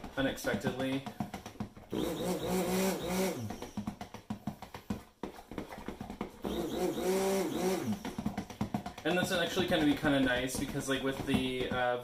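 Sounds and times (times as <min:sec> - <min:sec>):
stirring noise: 0:00.0 - 0:12.0
stick blender motor whine: 0:01.9 - 0:03.9, 0:06.4 - 0:08.7.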